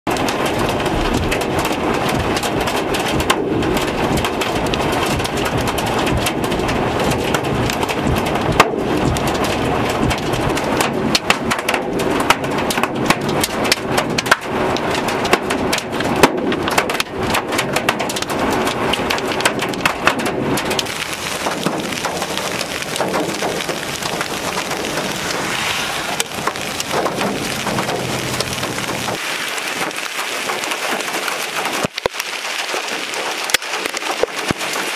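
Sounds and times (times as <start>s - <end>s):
hailstones striking ground: 0.1s - 34.9s
heavy rain hissing: 20.8s - 34.9s.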